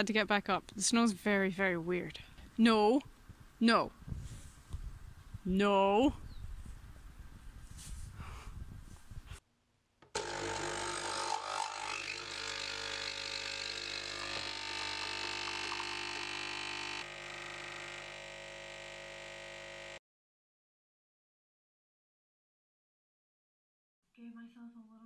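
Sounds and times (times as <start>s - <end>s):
coffee machine pump humming: 10.2s - 20.0s.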